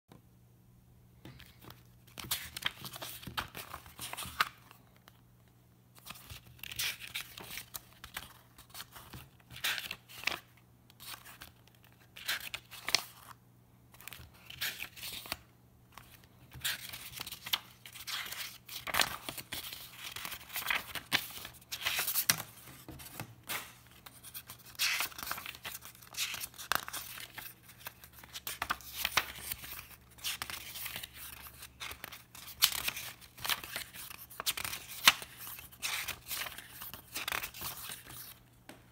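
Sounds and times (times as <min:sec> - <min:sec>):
paper pages rustling: 0:16.0 - 0:38.4.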